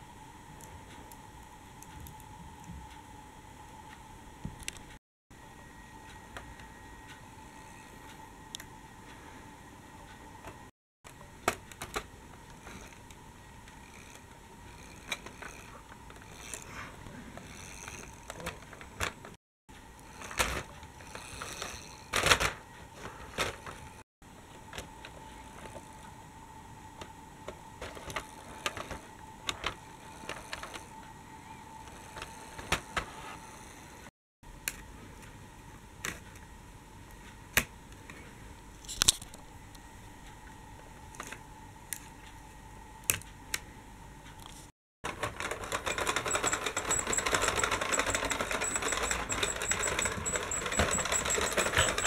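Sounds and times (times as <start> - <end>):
faint high hum: 0.0 - 52.0
plastic toy tram clicking: 45.1 - 52.0.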